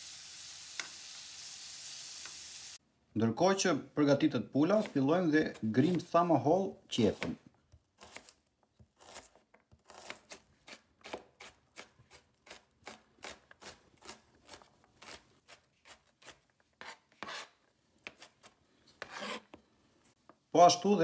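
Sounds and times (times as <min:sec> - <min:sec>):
knife chopping on cutting board: 0:04.7 - 0:05.0.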